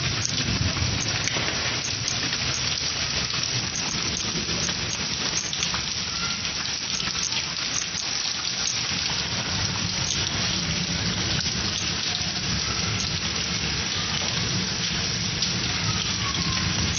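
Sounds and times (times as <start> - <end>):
heavy rain on concrete: 0.0 - 16.9.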